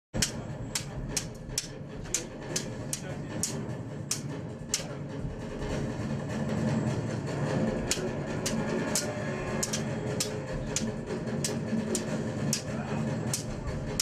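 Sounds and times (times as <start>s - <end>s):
steady low rumble: 0.2s - 14.0s
sharp clicks: 7.9s - 12.7s.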